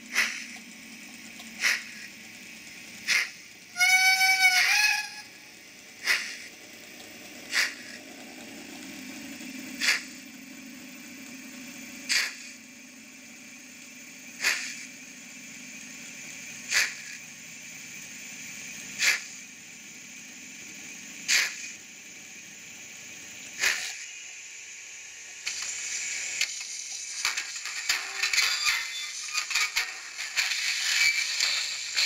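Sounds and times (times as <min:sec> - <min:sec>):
model train motor humming: 0:00.0 - 0:32.0
short hiss: 0:01.6 - 0:02.1, 0:03.0 - 0:03.4, 0:12.1 - 0:12.6, 0:14.4 - 0:14.9, 0:16.7 - 0:17.2, 0:19.0 - 0:19.4, 0:21.3 - 0:21.8.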